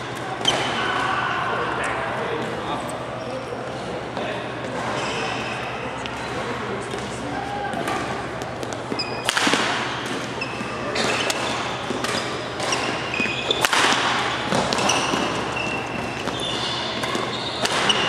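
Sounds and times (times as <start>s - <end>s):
shoes squeaking on court: 4.8s - 6.4s, 8.4s - 9.3s, 9.9s - 18.0s
racket striking shuttlecock: 7.7s - 18.0s.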